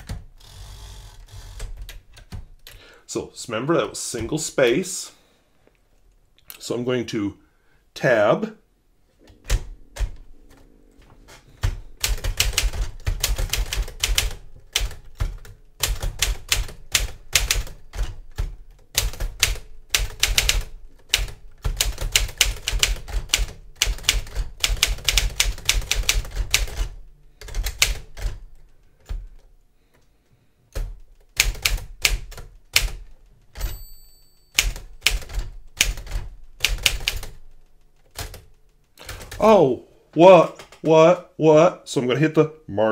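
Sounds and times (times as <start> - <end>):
typewriter keystrokes: 11.6 - 29.4, 30.7 - 33.8, 34.5 - 39.4
typewriter bell ringing: 33.5 - 35.1.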